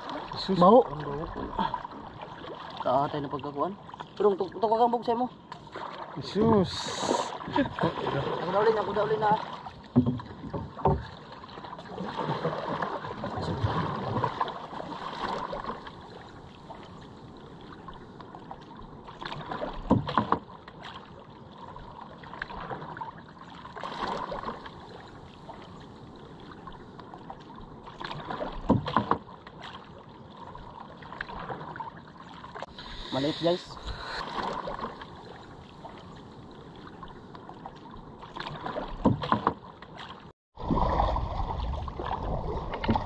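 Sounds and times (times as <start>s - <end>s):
paddle splashing in water: 0.0s - 43.0s
sharp knocks on canoe: 9.9s - 11.2s, 19.8s - 20.5s, 28.4s - 29.3s, 38.5s - 39.6s.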